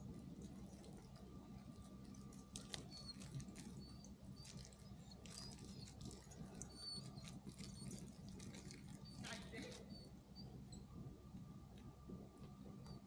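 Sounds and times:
campfire crackling: 0.0s - 13.0s
high-pitched squeaks: 2.1s - 10.9s.

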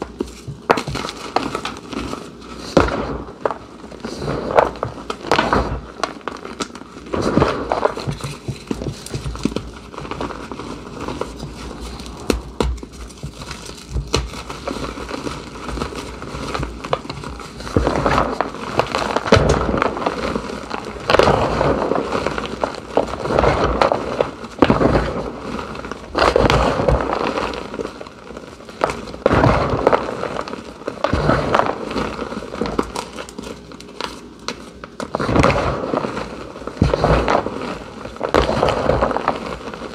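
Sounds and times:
chalk crunching and crumbling: 0.0s - 28.0s.

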